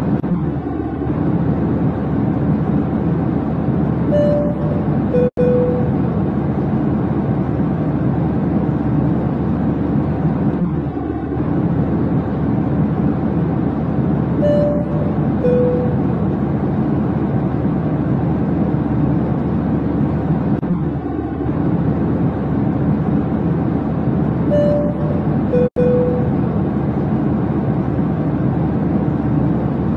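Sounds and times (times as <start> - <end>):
low rumbling drone: 0.0 - 29.9
brief higher tone: 4.1 - 6.1, 14.4 - 16.1, 24.5 - 26.5.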